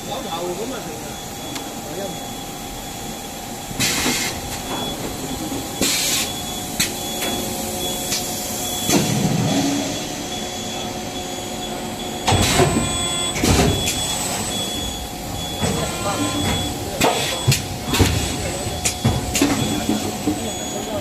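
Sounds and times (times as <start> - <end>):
machine mechanical hum: 0.0 - 21.0.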